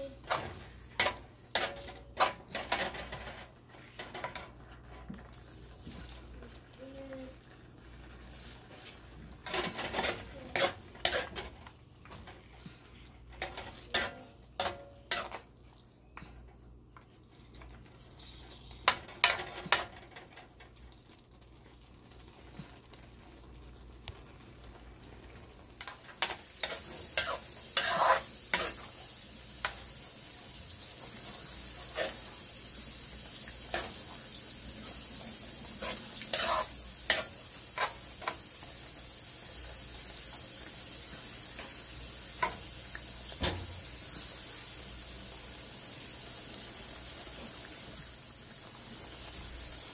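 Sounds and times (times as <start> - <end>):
pan sizzling: 0.0 - 49.9
metal spoon scraping a wok: 9.4 - 11.4, 25.8 - 28.9, 31.8 - 32.3, 35.8 - 38.4.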